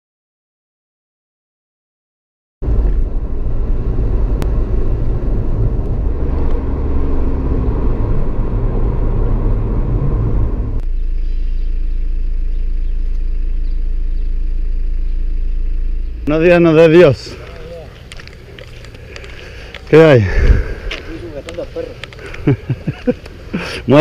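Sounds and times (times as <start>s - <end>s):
thin low hum: 2.6s - 21.2s
car engine and tyre rumble: 2.6s - 24.0s.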